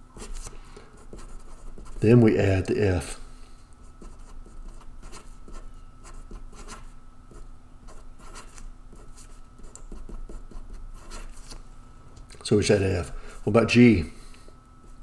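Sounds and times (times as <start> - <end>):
marker scratching on paper: 0.2 - 2.0, 4.0 - 11.6.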